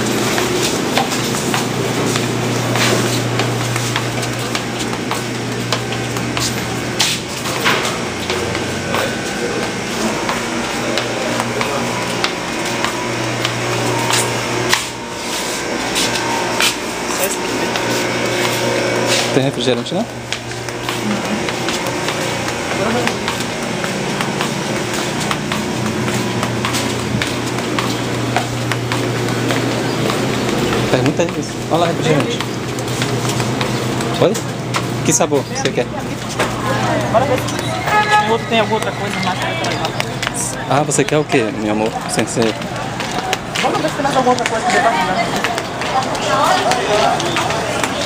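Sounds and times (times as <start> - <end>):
steady low hum: 0.0 - 48.0
faint music or voices: 20.9 - 48.0.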